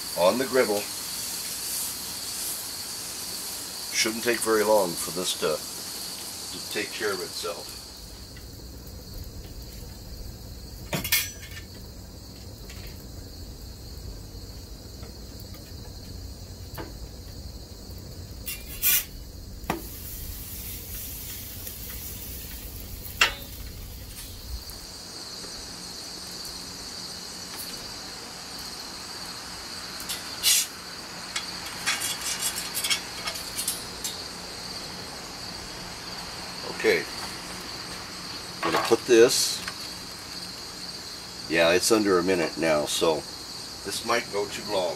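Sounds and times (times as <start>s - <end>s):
crickets chirping: 0.0s - 44.9s
low steady rumble: 7.8s - 25.0s.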